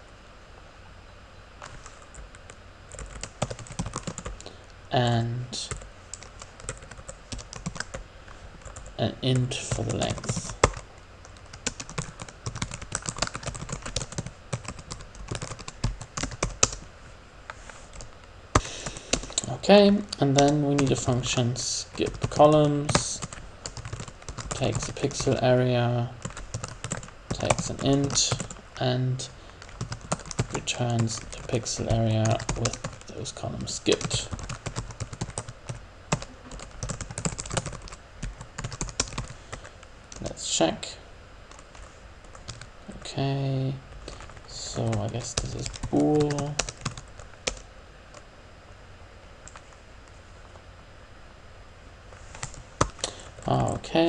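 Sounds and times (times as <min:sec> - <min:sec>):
computer keyboard typing: 0:01.6 - 0:04.5, 0:05.6 - 0:08.0, 0:08.6 - 0:08.9, 0:09.7 - 0:16.9, 0:17.9 - 0:19.5, 0:20.2 - 0:21.3, 0:21.9 - 0:25.4, 0:26.2 - 0:28.6, 0:29.6 - 0:33.2, 0:33.9 - 0:40.3, 0:41.5 - 0:42.7, 0:44.0 - 0:48.2, 0:49.4 - 0:49.7.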